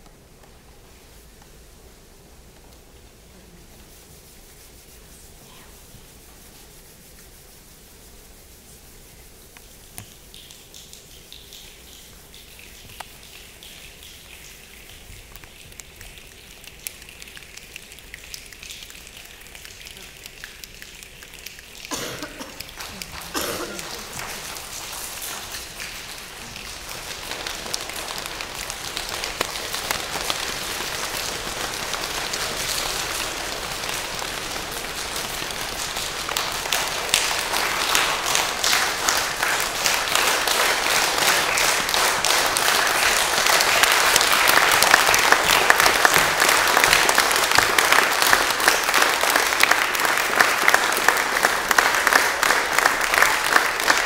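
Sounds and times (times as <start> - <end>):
hands clapping: 9.5 - 54.0.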